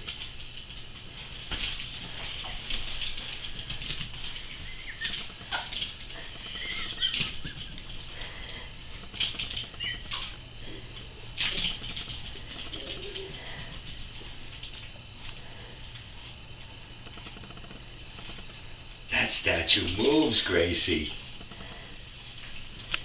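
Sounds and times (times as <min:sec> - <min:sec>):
dog claws clicking on tiles: 0:00.0 - 0:08.1, 0:08.9 - 0:10.4, 0:11.4 - 0:14.9.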